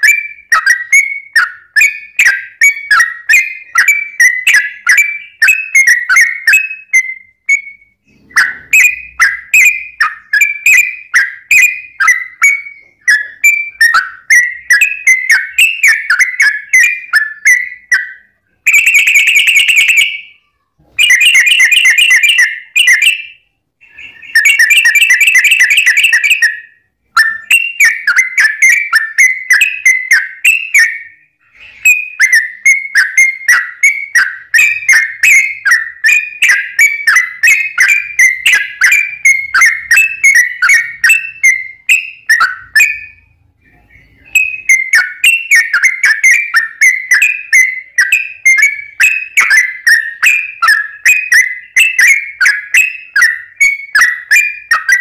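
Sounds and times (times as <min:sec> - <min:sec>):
bird whistled chirps: 0:00.0 - 0:55.0.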